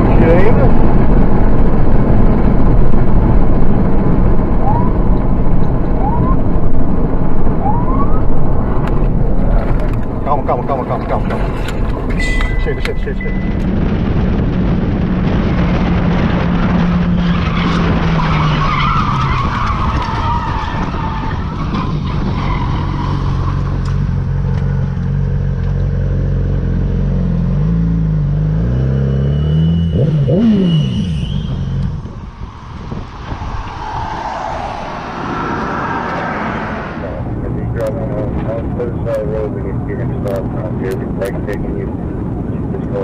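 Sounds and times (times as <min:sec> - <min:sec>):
wind noise on microphone: 0:00.0 - 0:10.3, 0:11.3 - 0:23.9, 0:29.9 - 0:38.5
short high squeal: 0:12.2 - 0:13.6, 0:29.2 - 0:37.0.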